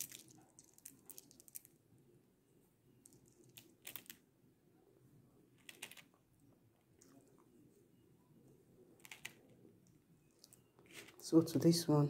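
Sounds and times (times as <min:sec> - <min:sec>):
beads clicking together: 0:00.0 - 0:01.8, 0:03.0 - 0:04.2, 0:05.6 - 0:06.2.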